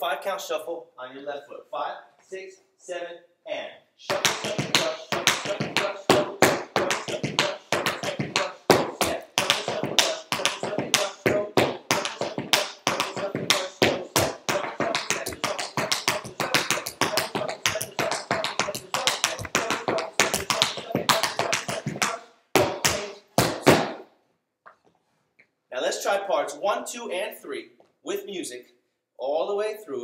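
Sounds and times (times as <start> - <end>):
tap shoes on wooden floor: 4.1 - 24.0.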